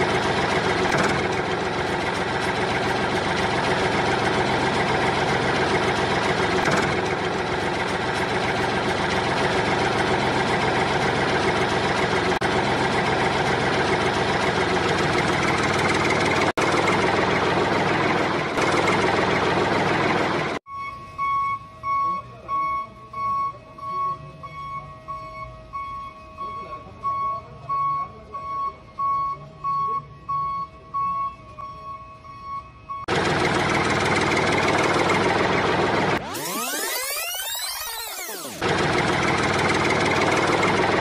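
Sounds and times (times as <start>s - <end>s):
heavy engine idling: 0.0s - 20.6s, 33.1s - 36.9s, 38.1s - 41.0s.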